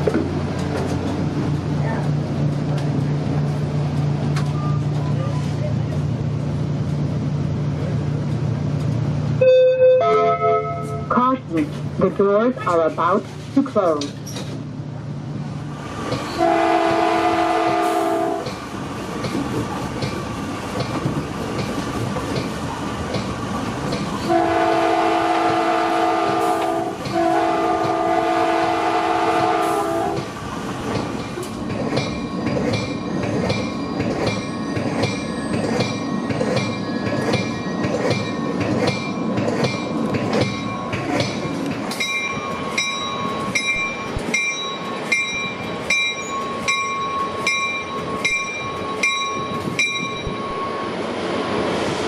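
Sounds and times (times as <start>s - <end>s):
train running on rails: 0.0s - 52.0s
train horn blasts: 9.4s - 11.2s, 16.3s - 18.5s, 24.3s - 30.2s.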